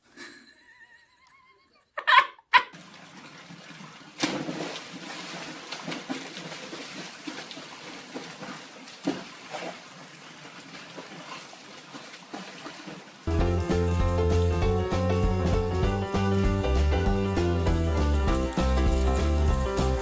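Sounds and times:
dog splashing into pool: 0:02.7 - 0:14.5
water splashing and trickling: 0:02.7 - 0:20.0.

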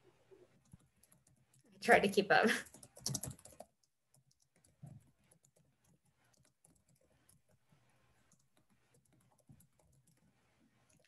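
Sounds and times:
computer keyboard typing: 0:00.6 - 0:01.8, 0:02.6 - 0:07.6, 0:08.2 - 0:10.3.

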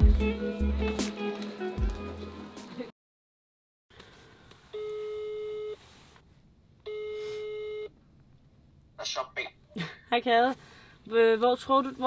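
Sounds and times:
background music: 0:00.0 - 0:02.9
telephone ringback tone: 0:04.8 - 0:05.8, 0:06.9 - 0:07.9.

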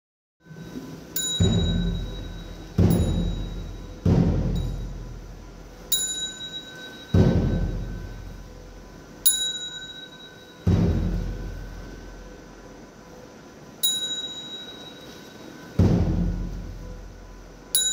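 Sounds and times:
bright bell ringing: 0:00.6 - 0:05.1, 0:05.9 - 0:08.4, 0:09.2 - 0:10.7, 0:13.8 - 0:15.8
deep drum strokes: 0:01.4 - 0:05.9, 0:07.2 - 0:09.1, 0:10.6 - 0:12.9, 0:15.7 - 0:17.7.

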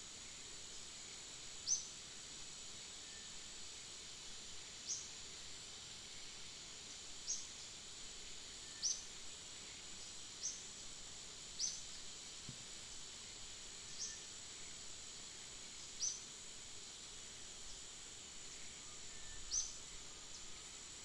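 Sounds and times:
high insect drone: 0:00.0 - 0:21.0.

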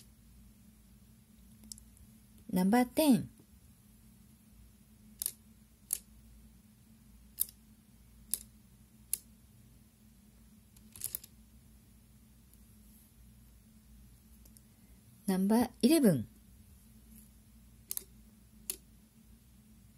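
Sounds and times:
abacus beads clicking: 0:05.1 - 0:06.1, 0:07.3 - 0:07.6, 0:08.2 - 0:09.3, 0:10.7 - 0:11.4, 0:17.8 - 0:18.9.

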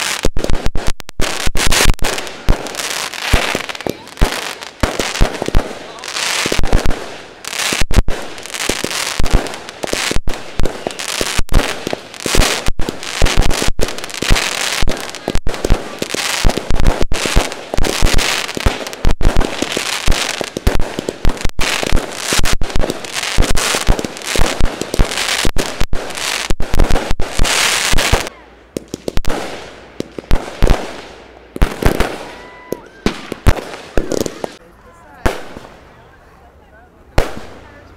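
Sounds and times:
fireworks bursting and crackling: 0:00.0 - 0:34.6, 0:35.2 - 0:36.0, 0:37.2 - 0:37.9.

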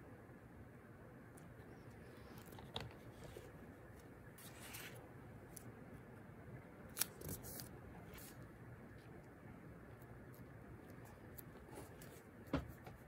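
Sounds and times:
paper pages rustling: 0:04.4 - 0:05.0.

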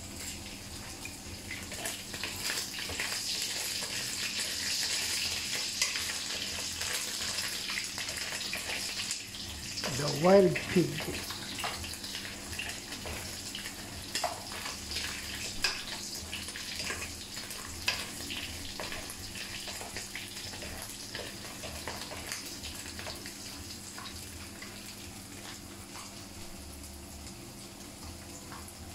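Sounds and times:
meat sizzling in hot oil: 0:00.0 - 0:28.9.

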